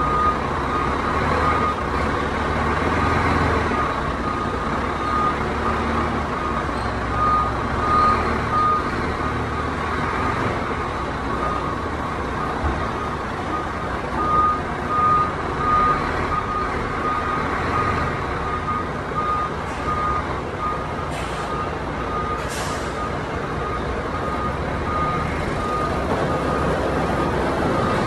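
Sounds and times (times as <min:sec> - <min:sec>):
diesel truck engines rumbling: 0:00.0 - 0:28.0
truck reversing alarm beeping: 0:00.0 - 0:28.0
air brake hisses: 0:21.1 - 0:21.6, 0:22.4 - 0:23.0.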